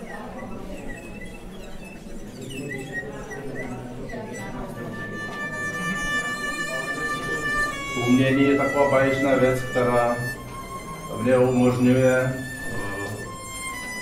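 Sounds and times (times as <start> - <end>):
solo violin: 4.4 - 14.0.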